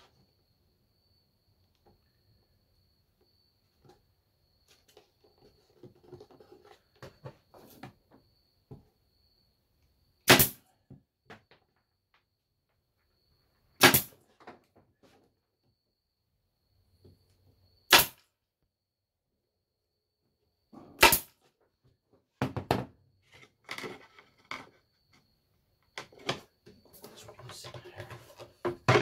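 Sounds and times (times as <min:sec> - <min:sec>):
pneumatic stapler firing: 0:10.3 - 0:10.6, 0:13.8 - 0:14.2, 0:17.9 - 0:18.2, 0:21.0 - 0:21.3
wood boards knocking: 0:22.4 - 0:22.9, 0:27.8 - 0:29.0.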